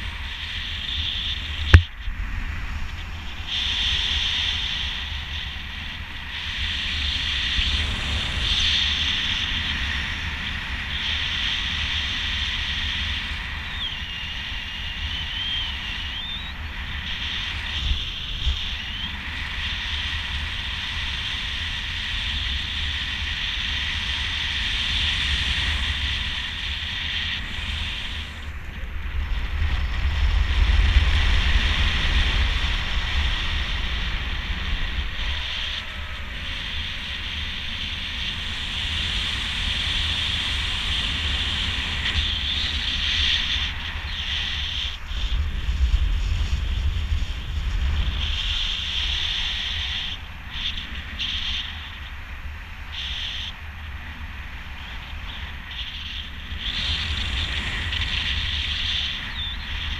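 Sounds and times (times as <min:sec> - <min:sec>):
wind buffeting microphone: 0:00.0 - 0:59.9
faint wavering whistle: 0:10.9 - 0:20.0, 0:57.9 - 0:59.9.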